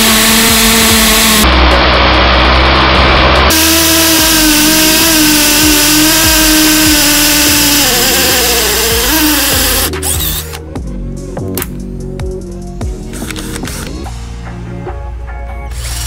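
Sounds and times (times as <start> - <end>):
drill boring into masonry wall: 0.0 - 1.4, 3.5 - 10.6, 15.7 - 16.0.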